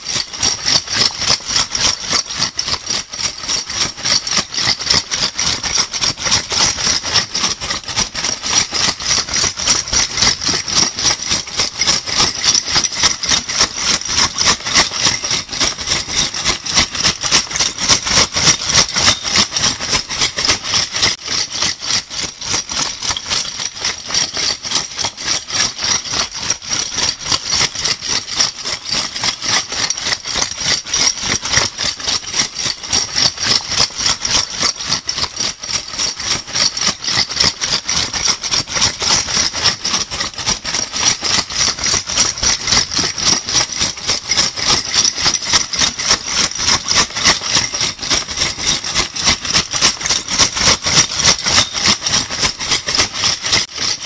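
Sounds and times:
metal bottle caps rattling: 0:09.2 - 0:26.3, 0:40.2 - 0:54.0.

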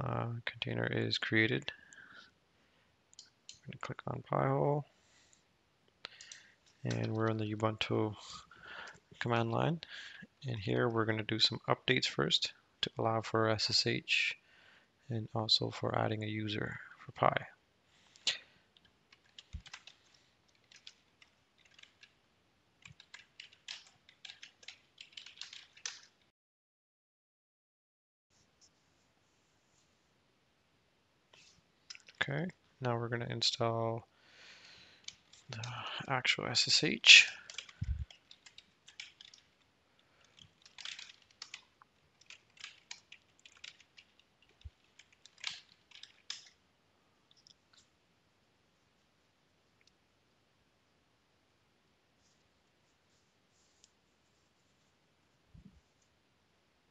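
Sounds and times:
computer keyboard keystrokes: 0:19.1 - 0:20.0, 0:20.6 - 0:22.2, 0:22.8 - 0:26.2, 0:37.4 - 0:39.5, 0:40.2 - 0:46.5.

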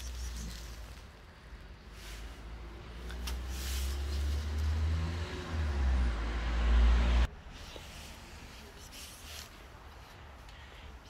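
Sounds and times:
vehicle engine rumble: 0:00.0 - 0:11.0.

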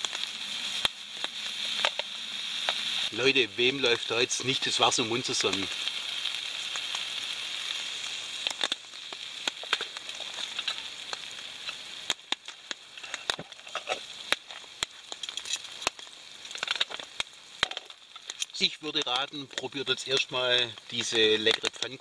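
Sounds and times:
small pops and clicks: 0:00.0 - 0:02.8, 0:05.4 - 0:06.0, 0:08.0 - 0:22.0
pancake sizzling in a pan: 0:00.0 - 0:22.0.

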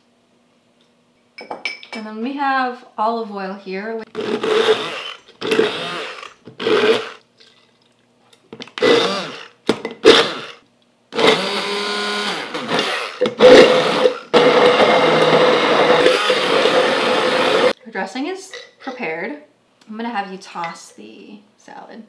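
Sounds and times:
stick blender in glass jar: 0:12.5 - 0:17.7.

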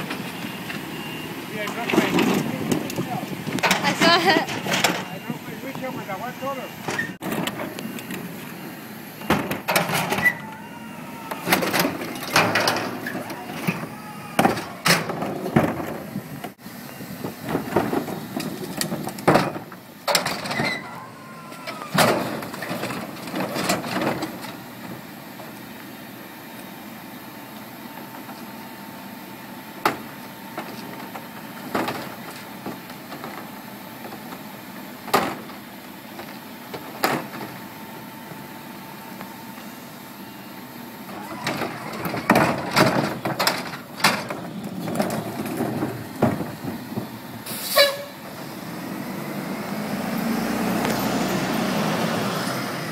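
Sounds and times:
cart and metal tipper clunking: 0:00.0 - 0:08.6, 0:09.2 - 0:16.6, 0:17.4 - 0:25.6, 0:29.8 - 0:38.1, 0:41.0 - 0:52.9
truck hum with held tone: 0:00.0 - 0:52.9
short squeaks: 0:06.8 - 0:08.0, 0:20.3 - 0:22.7.

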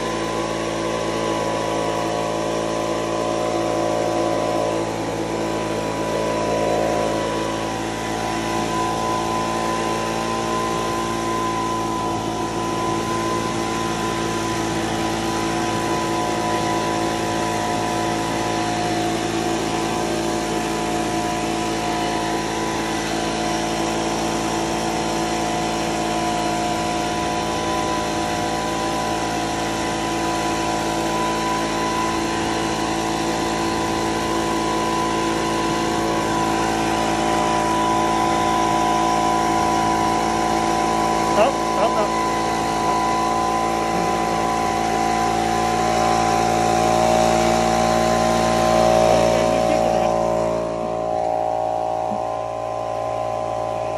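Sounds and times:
electric motor and blower whine: 0:00.0 - 0:53.9.

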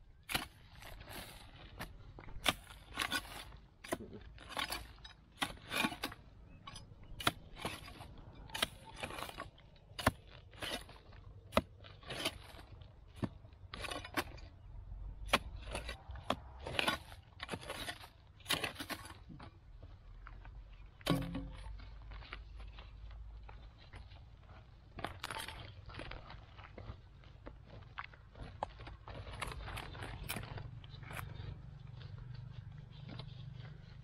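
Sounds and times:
loose earth scraping: 0:00.1 - 0:34.0
hoe chopping hard soil: 0:00.2 - 0:19.4, 0:21.0 - 0:21.8.

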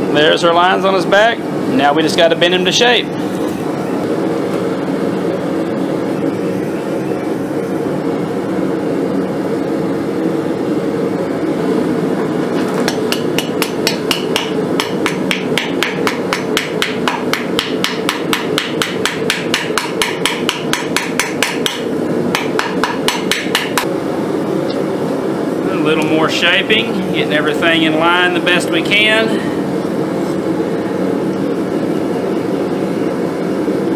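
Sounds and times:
hammer striking steel on anvil: 0:12.9 - 0:23.9.

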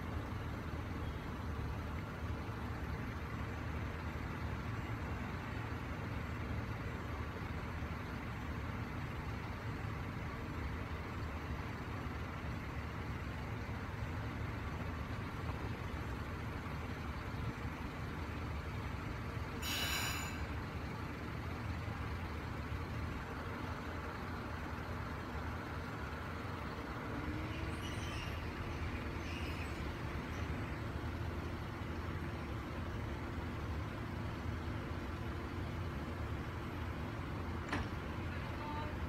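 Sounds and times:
diesel railcar engine idling: 0:00.0 - 0:39.0
hiss of released air: 0:19.6 - 0:20.6.

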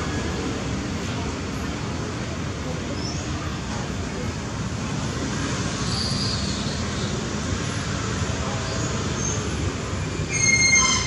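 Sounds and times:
loud high-pitched squeal: 0:08.6 - 0:11.0.

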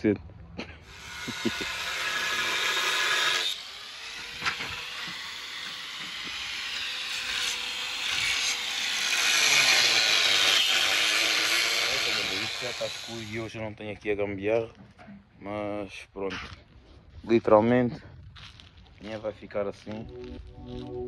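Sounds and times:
angle grinder cutting steel pipe: 0:00.9 - 0:13.5.

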